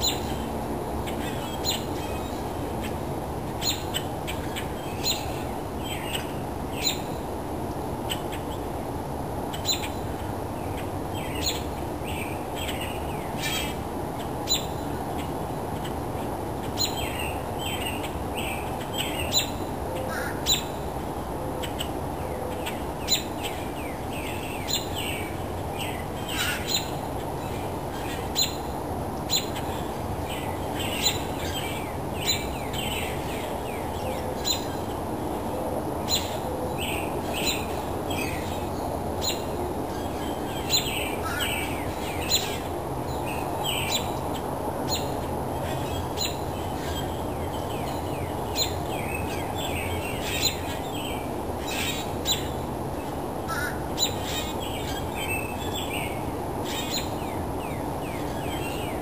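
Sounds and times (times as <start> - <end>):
songbirds chirping: 0.0 - 59.0.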